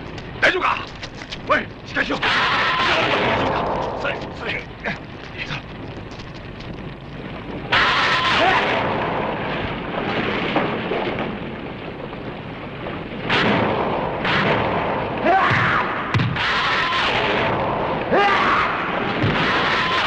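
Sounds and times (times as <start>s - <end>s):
explosion blasts rumbling: 0.0s - 20.0s.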